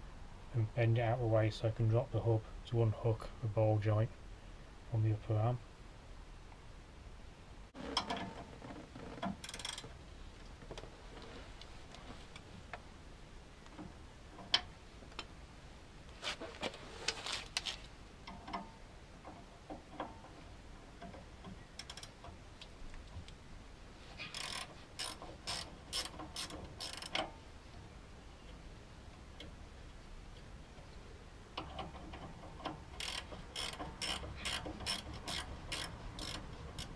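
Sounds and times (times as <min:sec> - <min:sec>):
ratchet wrench clicking: 0:09.4 - 0:09.8, 0:21.8 - 0:22.1, 0:24.3 - 0:27.3, 0:31.6 - 0:36.9.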